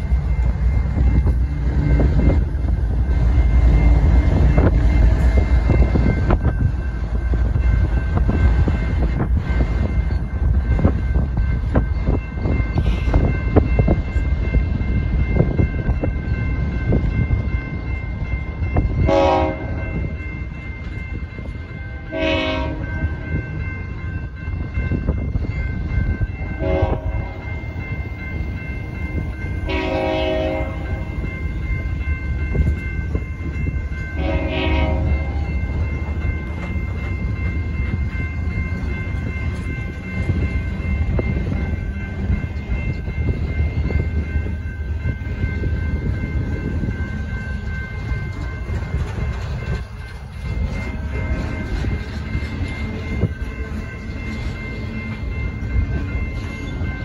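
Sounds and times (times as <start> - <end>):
crossing warning bell ringing: 0.0 - 57.0
diesel locomotive passing: 0.0 - 57.0
freight cars rumbling on rails: 0.0 - 57.0
train horn blasts: 19.0 - 19.9, 22.1 - 23.0, 26.6 - 27.4, 29.6 - 31.1, 34.2 - 35.4.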